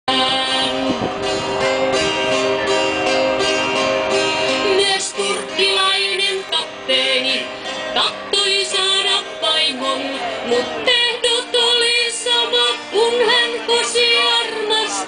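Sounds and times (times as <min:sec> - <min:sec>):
woman singing into a microphone: 0:00.1 - 0:01.5, 0:04.6 - 0:15.0
acoustic guitar strumming: 0:00.1 - 0:15.0.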